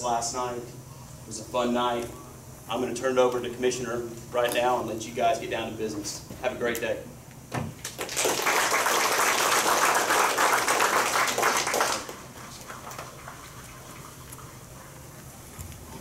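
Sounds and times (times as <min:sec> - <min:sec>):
audience applauding: 0:07.8 - 0:14.1.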